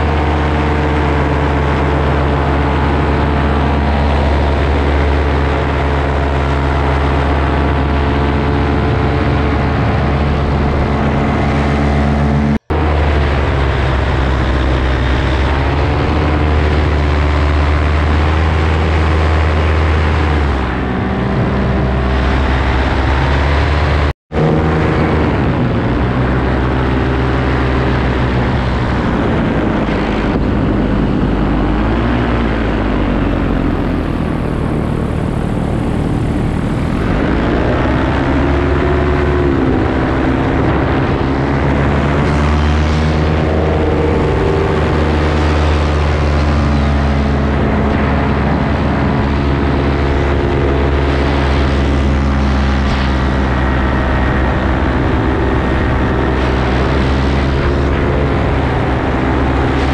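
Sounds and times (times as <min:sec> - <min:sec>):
paramotor engine drone: 0:00.0 - 0:59.9.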